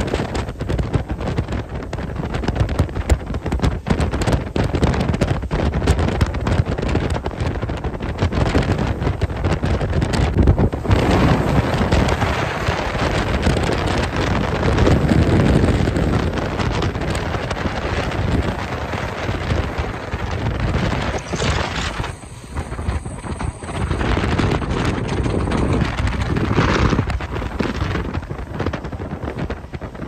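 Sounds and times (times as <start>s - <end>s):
rushing water from boat wake: 0.0s - 30.0s
wind buffeting microphone: 0.0s - 30.0s.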